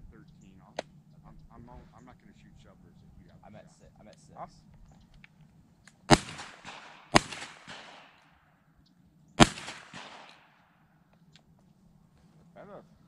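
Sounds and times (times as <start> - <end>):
shotgun shots with echo: 6.0 - 8.5, 9.4 - 10.8.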